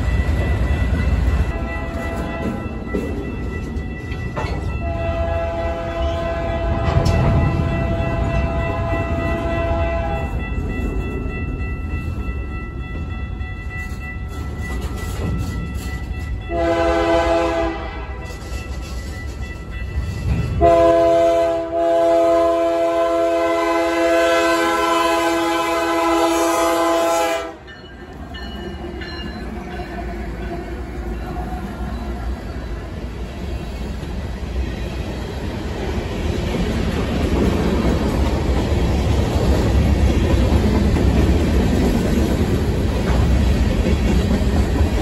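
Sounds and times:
freight train cars rumbling: 0.0s - 45.0s
locomotive horn chime blasts: 4.7s - 10.5s, 16.4s - 18.5s, 20.5s - 27.9s.

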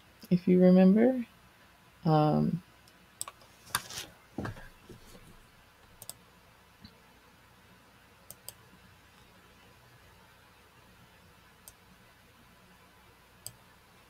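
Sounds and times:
computer mouse clicks: 2.8s - 3.9s, 5.9s - 6.2s, 8.3s - 8.6s, 13.4s - 13.6s.

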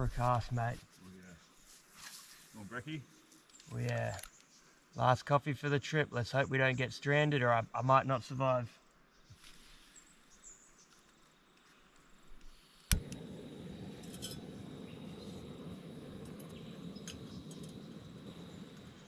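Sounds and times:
gas burner hissing: 12.4s - 19.0s
stove igniter click: 12.9s - 19.0s.

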